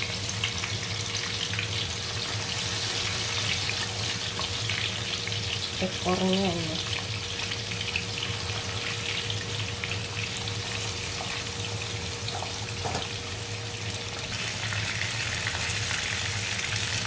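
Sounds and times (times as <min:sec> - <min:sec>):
fish sizzling in hot oil: 0:00.0 - 0:17.0.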